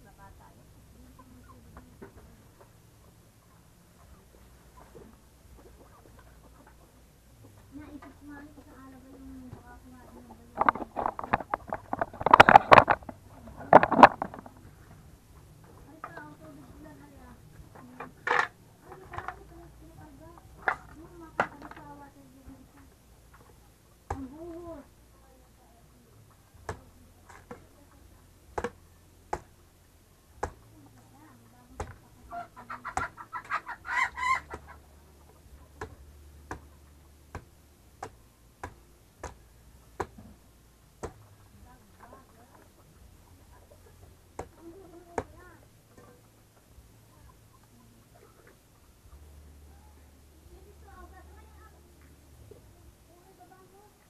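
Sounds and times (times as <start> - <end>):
coconut knocks and thuds on dirt: 24.1 - 24.3, 26.6 - 27.7, 28.5 - 29.6, 30.4 - 30.7, 31.7 - 32.0, 35.8 - 36.7, 37.3 - 39.4, 40.0 - 40.4, 41.0 - 41.3, 44.4 - 45.4
chicken clucking: 32.3 - 34.8.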